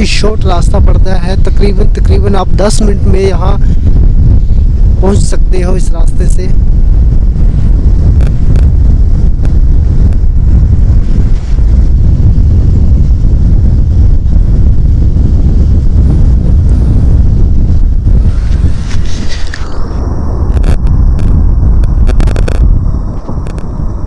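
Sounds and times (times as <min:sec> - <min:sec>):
wind buffeting microphone: 0:00.0 - 0:24.0
two-wheeler running on road: 0:06.3 - 0:24.0.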